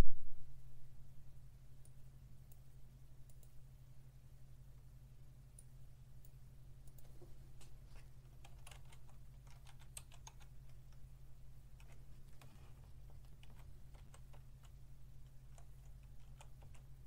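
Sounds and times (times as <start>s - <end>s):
steady low hum: 0.0s - 17.0s
computer keyboard typing: 8.2s - 11.1s, 11.7s - 17.0s.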